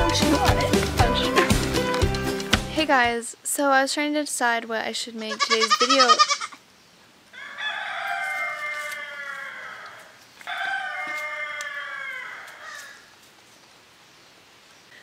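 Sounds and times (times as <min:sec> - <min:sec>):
rooster crowing: 0:07.3 - 0:13.1.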